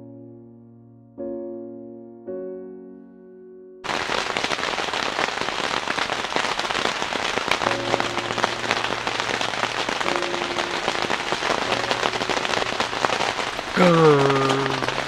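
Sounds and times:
heavy rain falling: 3.9 - 15.0.

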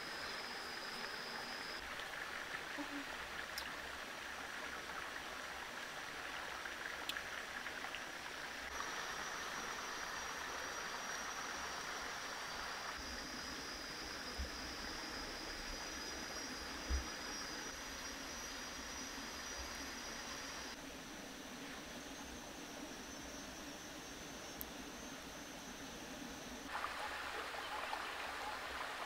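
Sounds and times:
stream rushing over rocks: 26.7 - 29.0.

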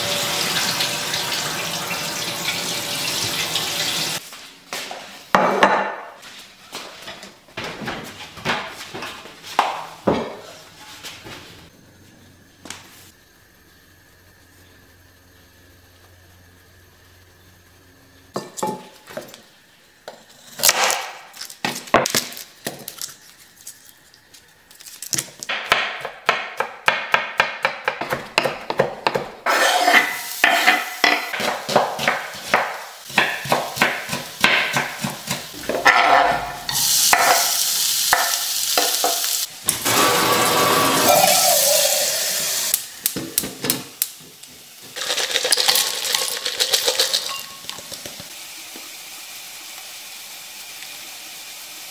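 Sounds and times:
oil sizzling in a frying pan: 0.0 - 4.3, 29.5 - 51.9
knife chopping on wooden board: 25.5 - 29.4, 31.3 - 35.4
metal kettle clinks: 46.8 - 47.9.

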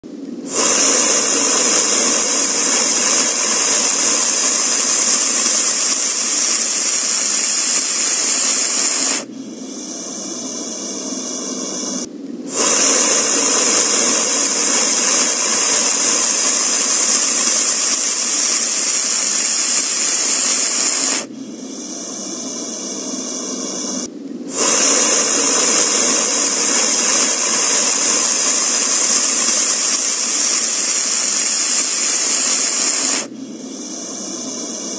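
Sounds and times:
loud steady hissing: 0.0 - 34.9.

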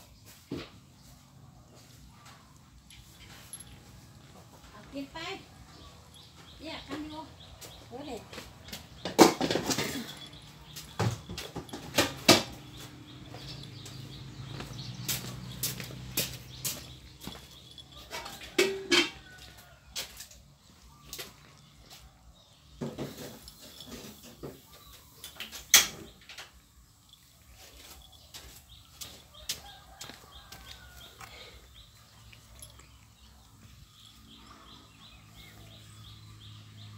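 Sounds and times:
cats chewing: 10.0 - 18.6, 27.0 - 35.6.

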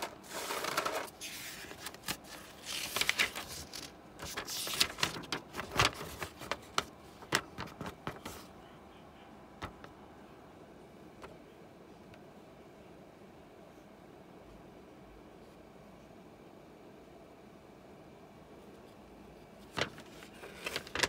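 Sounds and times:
paper rustling and crinkling: 0.0 - 8.5, 19.6 - 21.0.

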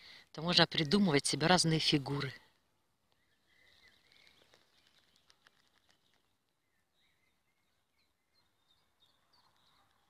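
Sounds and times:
faint bird chirps: 2.1 - 10.0.

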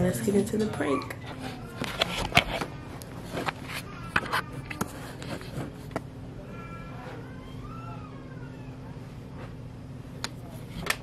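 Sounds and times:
rubbing and rustling: 1.2 - 6.0.

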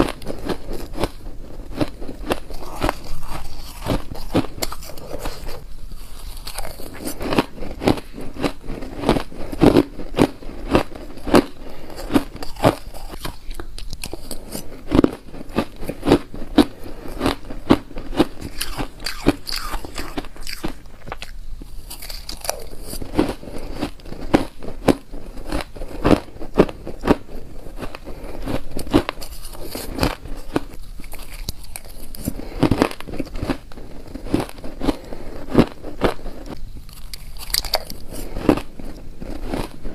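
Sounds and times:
shaved ice crunching between teeth: 0.0 - 26.2, 27.9 - 39.8.

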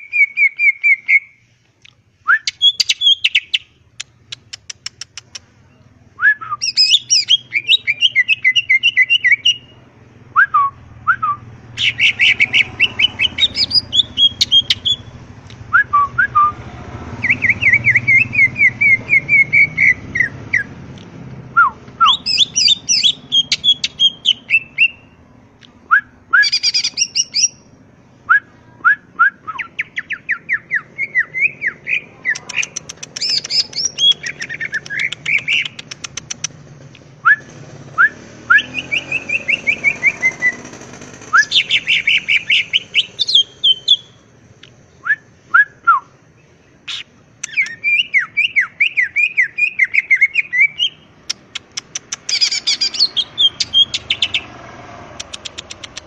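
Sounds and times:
bird trilling song: 0.0 - 1.4, 2.3 - 20.9, 21.6 - 25.2, 25.8 - 27.8, 28.8 - 36.6, 37.2 - 44.2, 44.9 - 56.0
down-slurred whistled bird notes: 0.0 - 1.4, 2.2 - 3.7, 5.7 - 9.8, 10.4 - 15.1, 17.2 - 20.7, 21.6 - 25.1, 37.2 - 40.7, 41.3 - 44.2, 44.9 - 51.1, 52.3 - 54.5.

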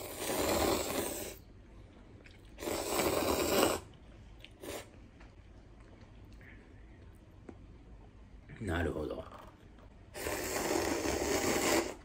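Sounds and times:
man slurping noodles: 0.0 - 1.4, 2.5 - 3.9, 10.2 - 12.0.

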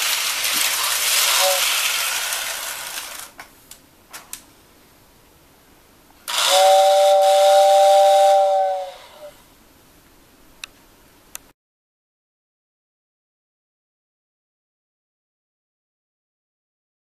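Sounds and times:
air hiss: 0.0 - 3.3, 6.3 - 9.4
two-tone toy train whistle: 0.8 - 2.7, 6.3 - 9.4.

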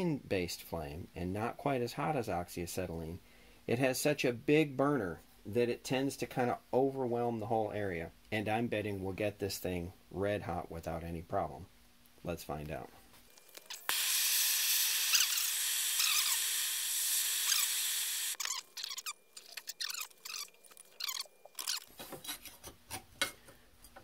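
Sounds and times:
propane torch hissing: 13.8 - 18.4.

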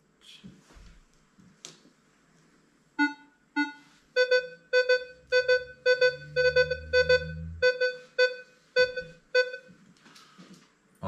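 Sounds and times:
metal detector beeps: 3.0 - 9.7.

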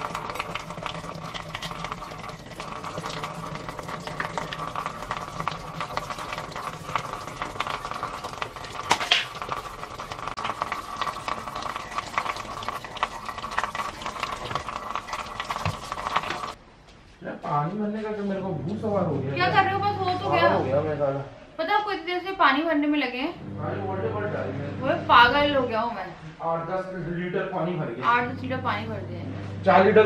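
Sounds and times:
tap water running into basin: 0.0 - 16.6
sponge scrubbing basin: 1.0 - 16.6.

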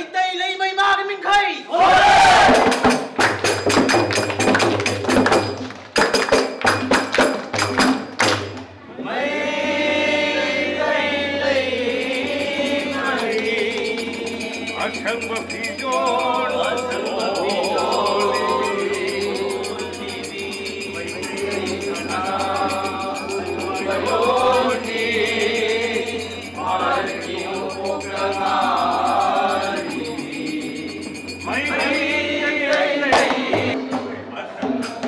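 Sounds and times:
men singing together: 9.0 - 33.8.

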